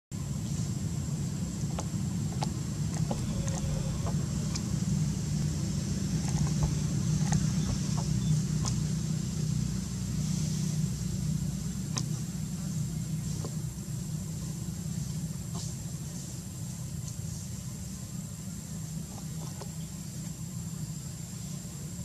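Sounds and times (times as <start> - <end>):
low motor rumble: 0.2 - 22.0
thin high tone: 3.1 - 8.4.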